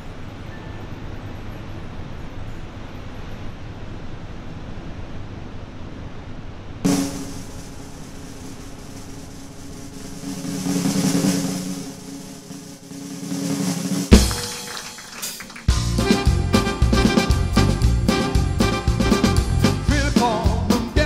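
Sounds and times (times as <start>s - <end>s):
drum roll: 6.8s - 21.0s
cymbal crash with ringing tail: 6.9s - 14.7s
band playing: 6.9s - 21.0s.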